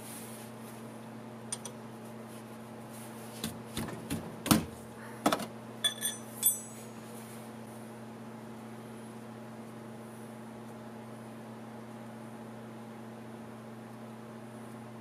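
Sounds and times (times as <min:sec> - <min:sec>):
steady low hum: 0:00.0 - 0:15.0
metal tool clinking against cart: 0:05.8 - 0:06.9.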